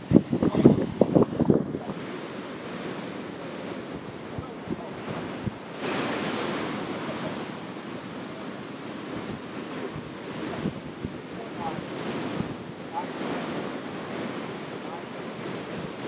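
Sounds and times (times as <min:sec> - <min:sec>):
ocean surf breaking: 0:00.0 - 0:16.0
wave crashing: 0:00.0 - 0:16.0
wind buffeting microphone: 0:00.0 - 0:16.0.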